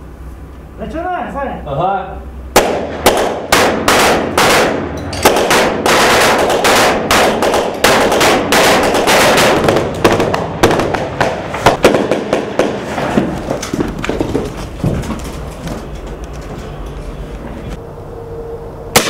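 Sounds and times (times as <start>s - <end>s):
rifle gunfire with echo: 2.6s - 12.9s.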